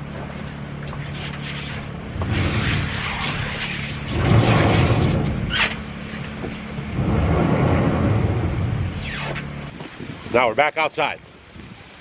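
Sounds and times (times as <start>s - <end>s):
wind rumbling on microphone: 2.0s - 12.0s.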